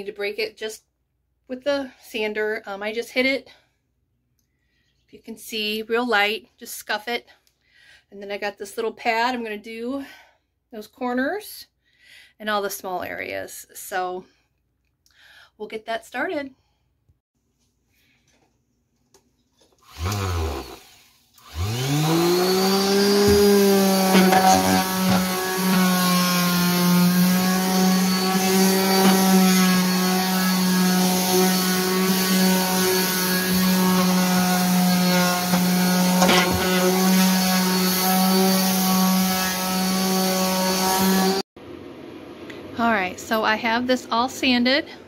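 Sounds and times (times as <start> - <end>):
electric sander humming: 19.9 - 41.4.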